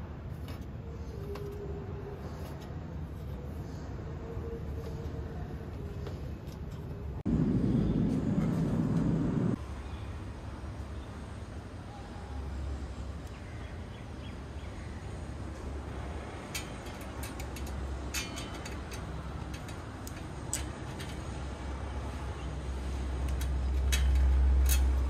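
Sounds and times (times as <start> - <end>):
steady low rumble: 7.0 - 9.8
small hardware clicking on metal: 16.5 - 21.4, 23.2 - 25.0.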